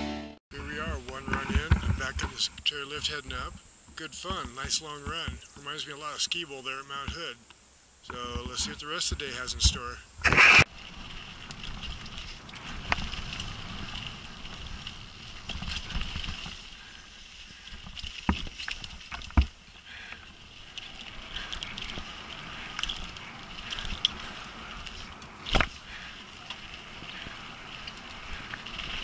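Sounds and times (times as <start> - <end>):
bike tyres rolling on dirt: 0.5 - 29.0
bike rattling: 0.6 - 5.8, 8.2 - 9.9, 10.7 - 29.0
short loud burst: 10.2 - 10.7.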